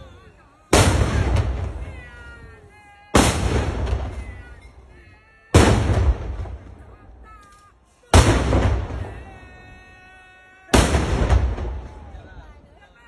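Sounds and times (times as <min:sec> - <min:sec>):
salute guns booming: 0:00.7 - 0:01.9, 0:03.2 - 0:04.6, 0:05.6 - 0:07.0, 0:08.1 - 0:09.3, 0:10.7 - 0:12.2.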